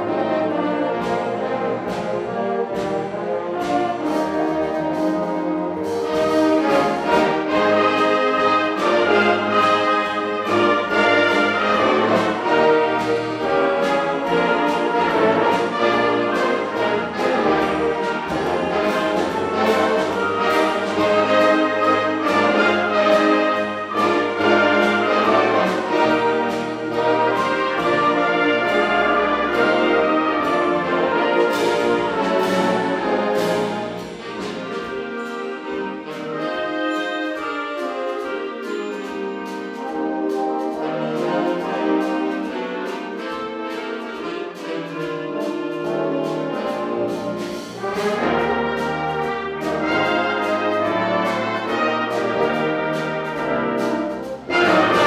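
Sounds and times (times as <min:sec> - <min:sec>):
concert band playing: 0:00.0 - 0:55.0
steady percussion beat: 0:00.0 - 0:55.0.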